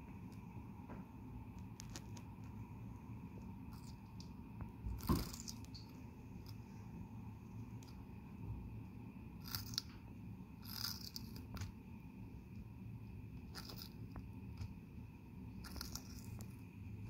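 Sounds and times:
faint steady hum: 0.0 - 17.0
turtle crunching leaf: 4.9 - 6.6, 10.6 - 11.7, 13.5 - 14.0, 15.6 - 16.5.

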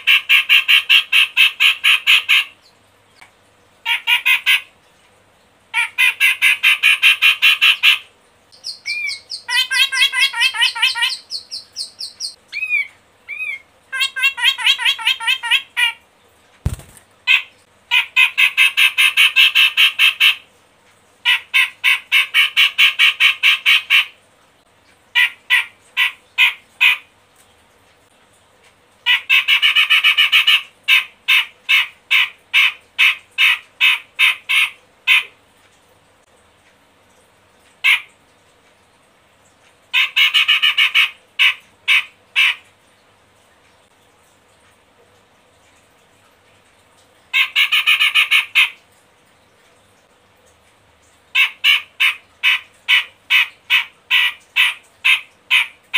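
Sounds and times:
bird harsh chattering song: 8.6 - 16.0.

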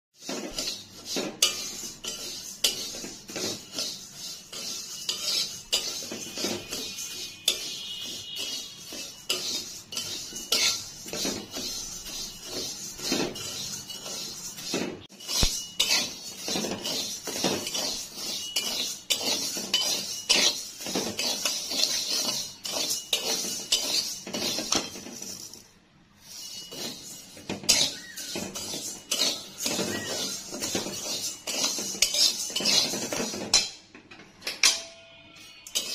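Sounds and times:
metal spatula scraping a wok: 0.2 - 35.9
seeds rattling on metal: 15.2 - 33.7.

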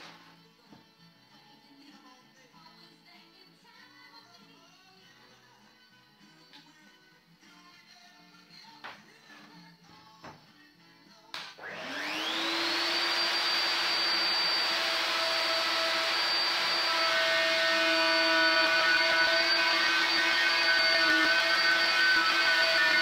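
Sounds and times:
router motor high whine: 11.6 - 23.0.

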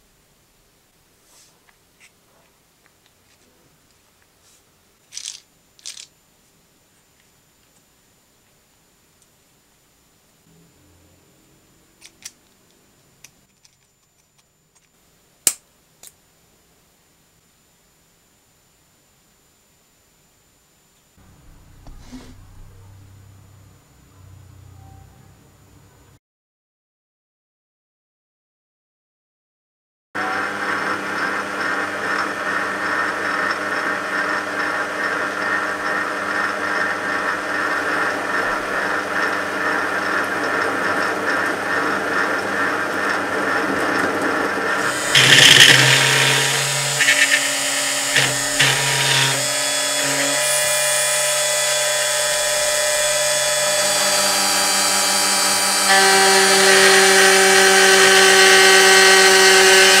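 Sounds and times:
lathe cutting noise: 30.2 - 60.0
lathe motor whine: 30.2 - 60.0.

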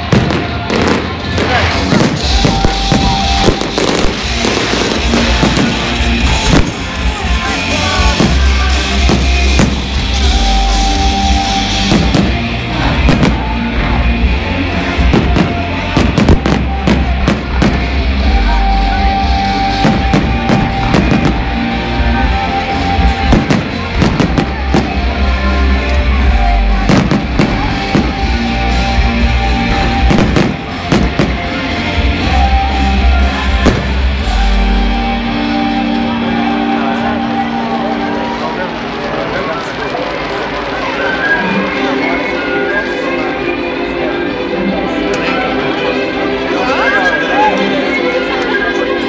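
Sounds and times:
fireworks banging and crackling: 0.0 - 34.5
loud rock music: 0.0 - 49.0.

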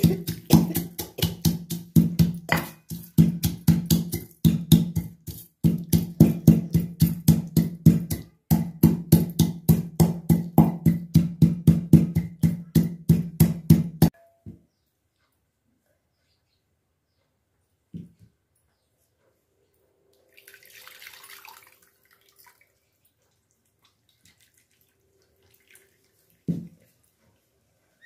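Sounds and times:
steel tumbler pounding in metal bowl: 0.0 - 14.2.

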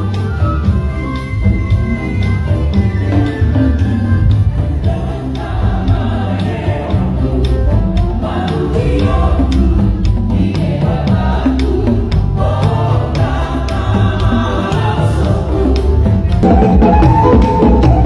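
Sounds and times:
choir singing a hymn: 2.0 - 16.3
tuned drums: 6.9 - 18.0.

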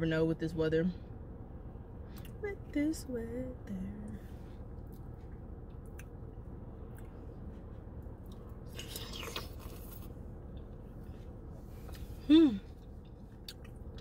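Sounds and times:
low background hum: 0.0 - 14.0
mouth and eating sounds: 8.2 - 10.7
slurping from a spoon: 8.7 - 10.1.

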